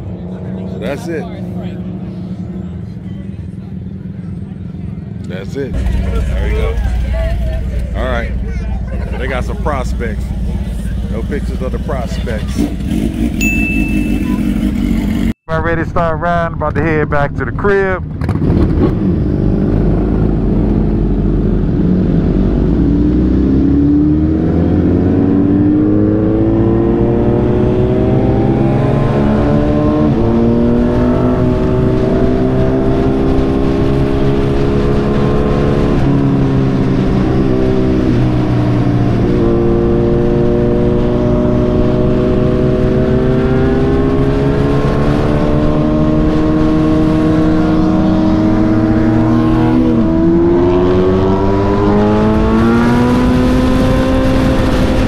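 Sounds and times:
motorcycle engine accelerating: 5.2s - 15.4s, 17.4s - 55.0s.

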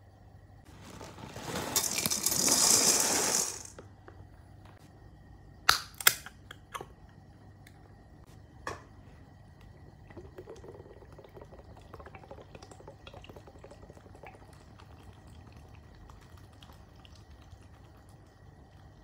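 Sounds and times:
cereal rattling into plastic bowl: 0.8s - 3.8s.

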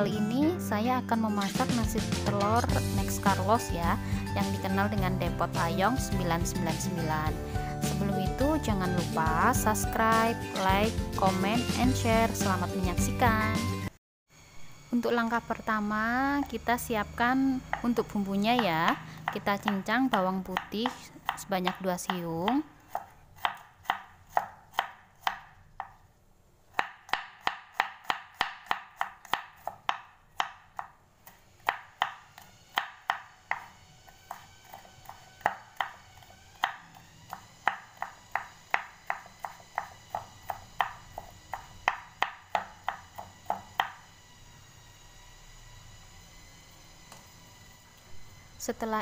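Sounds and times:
knife chopping on wooden board: 18.5s - 26.0s, 26.7s - 44.0s.

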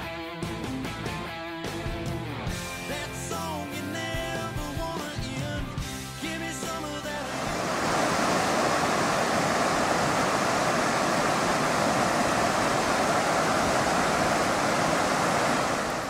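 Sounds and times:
river water rushing over rocks: 7.2s - 16.0s.

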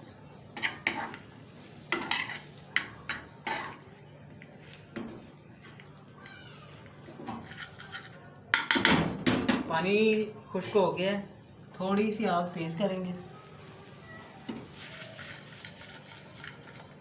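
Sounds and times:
metal spoon scraping frying pan: 0.6s - 1.3s, 1.9s - 4.0s, 7.0s - 8.9s, 14.6s - 17.0s.

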